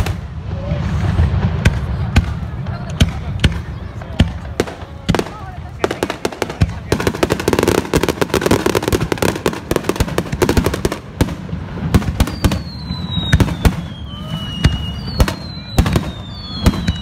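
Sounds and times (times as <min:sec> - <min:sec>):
fireworks crackling and booming: 0:00.0 - 0:17.0
fireworks falling whistles: 0:05.8 - 0:17.0.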